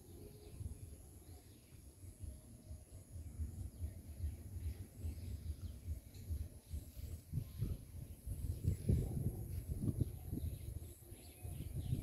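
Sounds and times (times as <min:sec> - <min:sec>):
faint bird chirps: 0:00.0 - 0:12.0
wind rumbling on microphone: 0:00.0 - 0:12.0.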